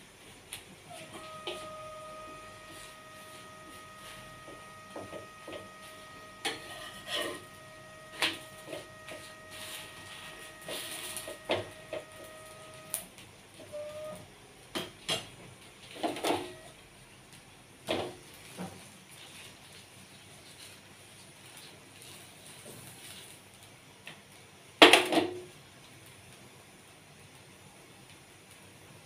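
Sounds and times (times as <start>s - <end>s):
steady hum: 0.0s - 14.7s
metal spatula scraping griddle: 1.0s - 12.4s.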